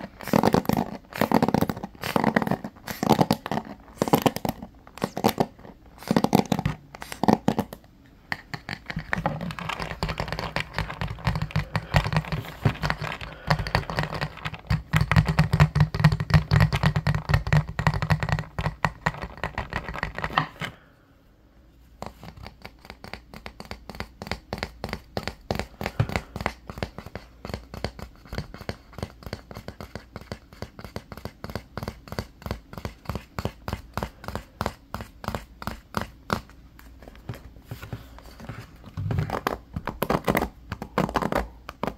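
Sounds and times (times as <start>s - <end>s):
fingernails tapping on hairbrush: 22.2s - 36.5s.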